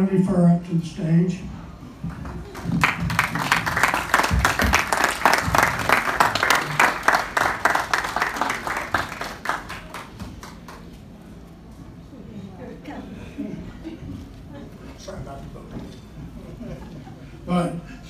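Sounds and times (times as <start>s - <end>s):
crowd applauding: 2.2s - 11.0s.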